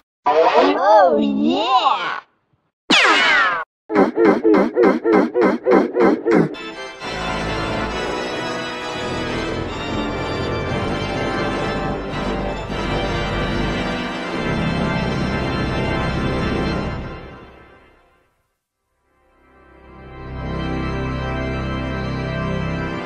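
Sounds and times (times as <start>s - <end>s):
theme music sustained chords: 6.6s - 17.9s, 19.3s - 23.0s.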